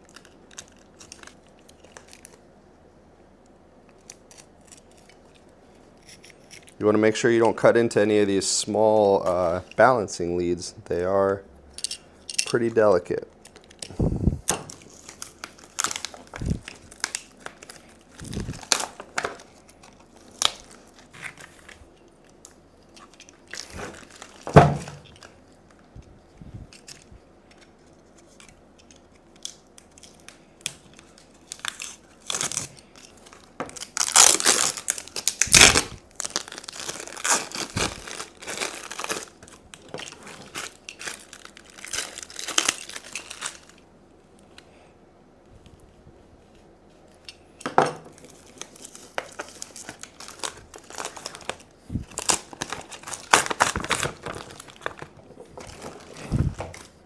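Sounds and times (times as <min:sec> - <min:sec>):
tape peeling and tearing: 0:03.9 - 0:06.8, 0:14.7 - 0:25.8, 0:26.8 - 0:43.8, 0:48.2 - 0:55.0.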